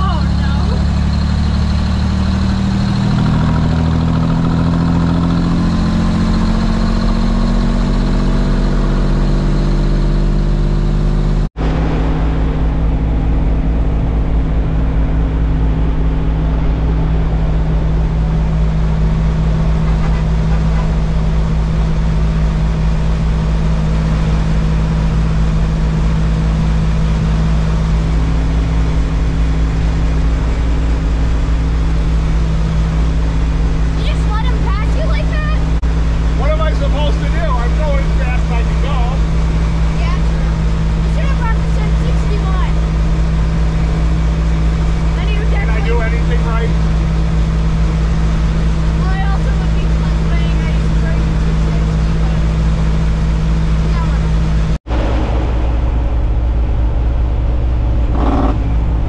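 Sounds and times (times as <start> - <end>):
road noise: 0.0 - 59.0
truck diesel engine drone: 0.0 - 59.0.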